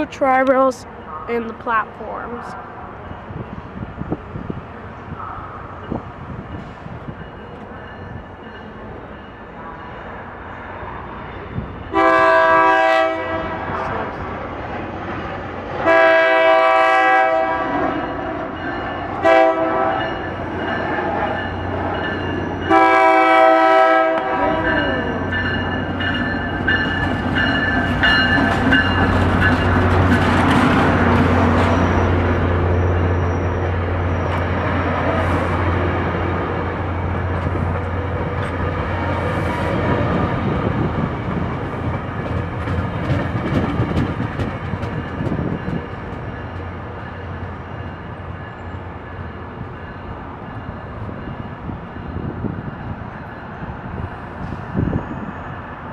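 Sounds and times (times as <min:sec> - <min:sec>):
train wheels rumbling on rails: 0:00.0 - 0:55.9
train horn: 0:11.9 - 0:13.9, 0:15.8 - 0:18.0, 0:19.2 - 0:20.2, 0:22.7 - 0:25.2.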